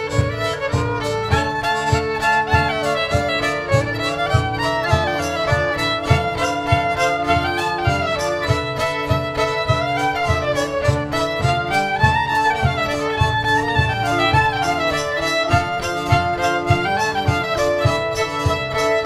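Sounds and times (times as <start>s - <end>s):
held drone note: 0.0s - 18.9s
bass guitar: 0.0s - 19.0s
fiddle melody: 0.0s - 19.0s
pulsing beat: 0.0s - 19.0s.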